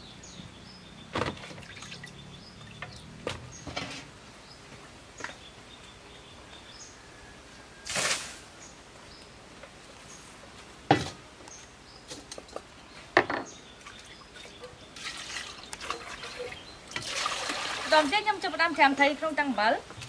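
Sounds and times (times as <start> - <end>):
small birds chirping: 0.0 - 7.1, 11.4 - 17.0
water pouring out: 7.9 - 8.5, 15.0 - 18.3.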